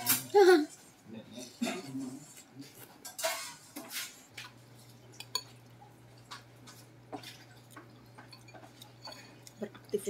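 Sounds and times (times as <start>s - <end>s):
cutlery clinking on ceramic bowl: 5.2s - 5.6s, 6.2s - 9.7s.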